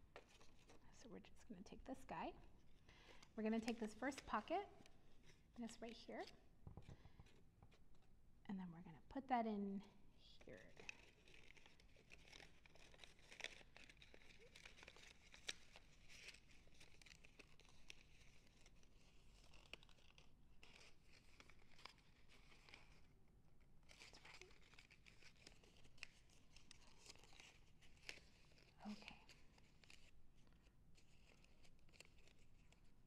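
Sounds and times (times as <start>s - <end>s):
paper rustling and crinkling: 0.1s - 0.9s, 3.0s - 8.1s, 10.5s - 23.2s, 23.8s - 33.0s.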